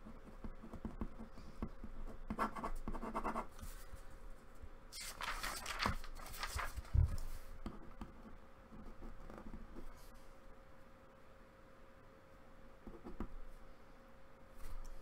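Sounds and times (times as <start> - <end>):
pen scratching on paper: 0.4 - 3.5.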